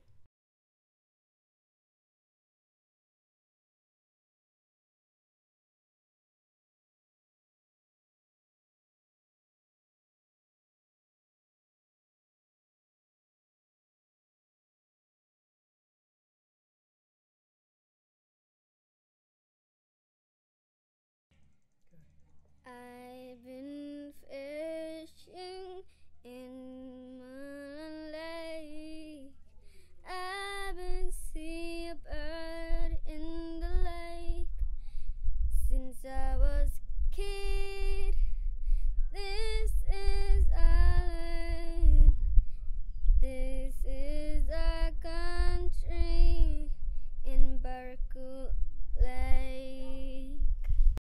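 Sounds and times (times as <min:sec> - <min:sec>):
woman singing slow song: 0:22.7 - 0:29.4, 0:30.0 - 0:34.6, 0:35.4 - 0:42.4, 0:43.1 - 0:50.6
low rumble: 0:30.0 - 0:51.0.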